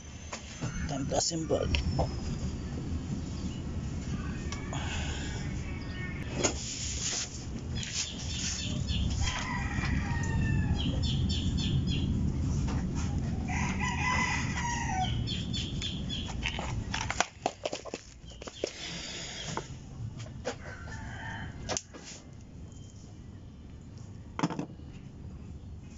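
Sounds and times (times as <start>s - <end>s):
steady low hum: 0.0s - 21.7s
rooster crowing: 9.1s - 11.6s, 13.3s - 15.4s, 20.6s - 22.2s.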